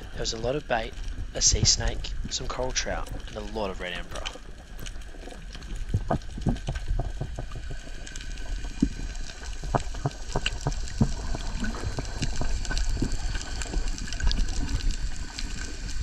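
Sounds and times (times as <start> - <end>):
muffled underwater wash: 0.0 - 16.0.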